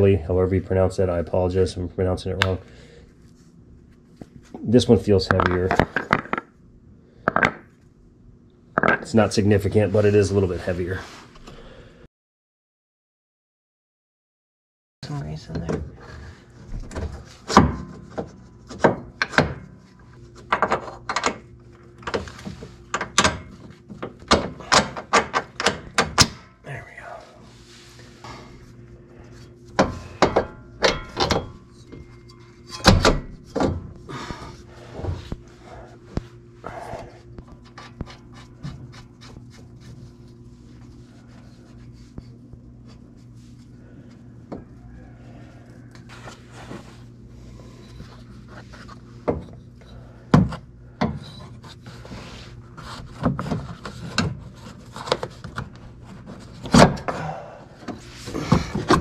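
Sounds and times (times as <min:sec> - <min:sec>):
rubbing and handling noise: 0:26.8 - 0:30.2, 0:33.4 - 0:56.8.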